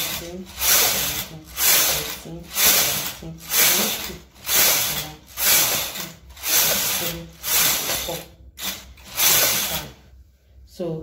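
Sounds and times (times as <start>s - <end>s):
knitting machine carriage passes: 0.0s - 10.0s.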